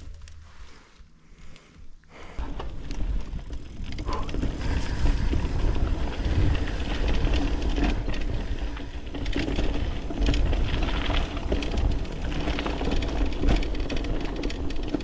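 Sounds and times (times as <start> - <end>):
bike clicking and rattling: 0.0 - 0.5, 1.3 - 15.0
bike tyres rumbling on trail: 0.0 - 15.0.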